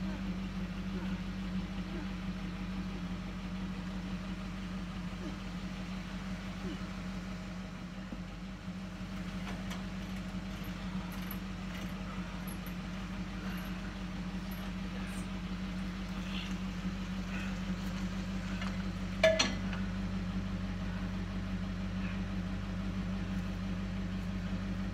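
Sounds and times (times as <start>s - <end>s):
truck engine idling: 0.0s - 24.9s
sharp metallic clank: 19.2s - 19.7s.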